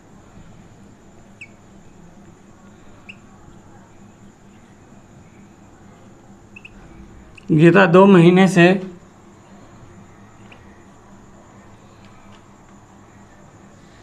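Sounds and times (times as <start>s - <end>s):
marker squeaking on whiteboard: 6.5s - 7.5s.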